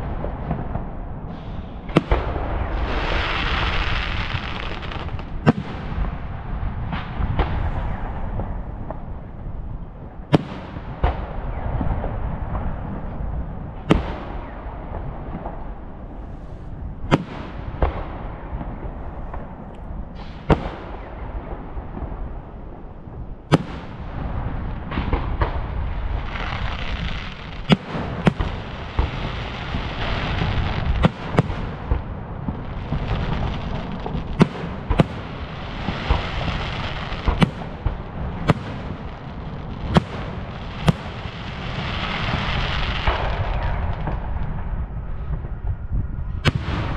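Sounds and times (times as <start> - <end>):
fireworks crackling: 0.0 - 9.1, 23.5 - 45.5
fireworks bursting with bangs: 0.0 - 9.4, 10.3 - 16.3, 17.0 - 22.5, 23.4 - 44.7, 46.4 - 46.9
constant low rumble: 0.0 - 46.9.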